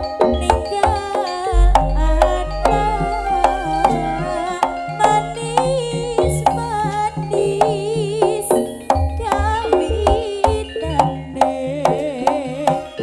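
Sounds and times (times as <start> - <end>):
ornamented gamelan melody: 0.0 - 13.0
sustained low tones: 1.5 - 8.1
hand drum strokes: 1.5 - 8.6.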